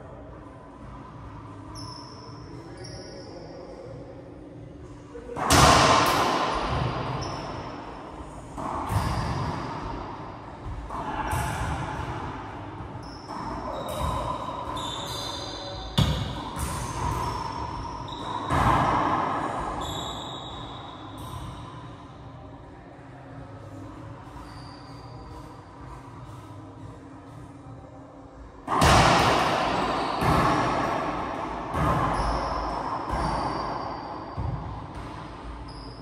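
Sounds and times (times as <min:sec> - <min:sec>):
racquetball hitting court walls: 0:05.3 - 0:21.8, 0:28.6 - 0:35.9.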